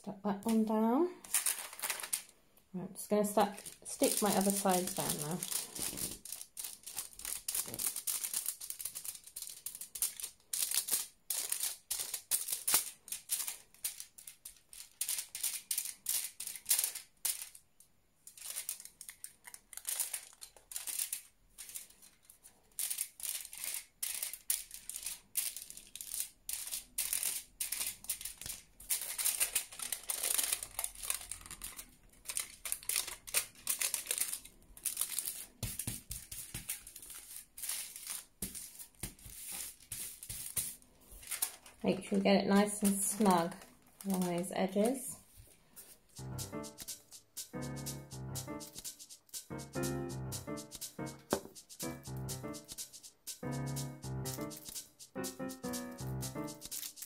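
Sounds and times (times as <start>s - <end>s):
foil crinkling: 1.2s - 2.3s, 3.3s - 17.6s, 18.2s - 47.5s, 56.2s - 57.0s.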